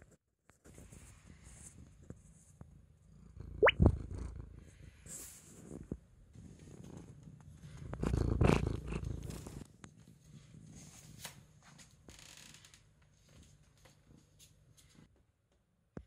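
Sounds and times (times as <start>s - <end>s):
cat purring: 5.7s - 10.9s.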